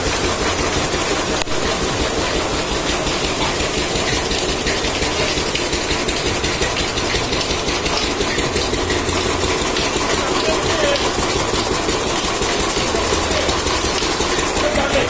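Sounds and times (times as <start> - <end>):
fodder chopper running: 0.0 - 15.0.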